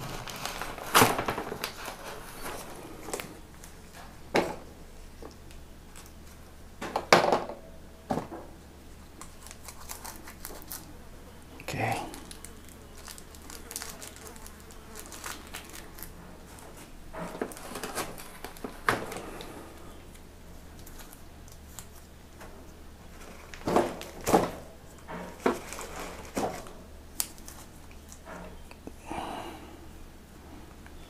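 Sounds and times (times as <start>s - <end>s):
packaging crinkling: 0.0s - 4.1s, 9.2s - 10.9s, 12.1s - 20.1s, 20.7s - 22.1s, 23.1s - 28.2s.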